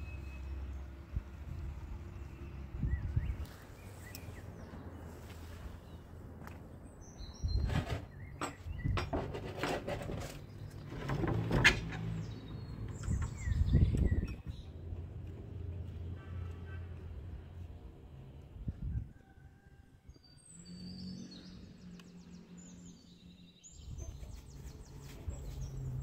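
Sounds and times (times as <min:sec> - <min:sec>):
small birds chirping: 0:00.0 - 0:09.0, 0:12.1 - 0:17.1, 0:20.1 - 0:26.0.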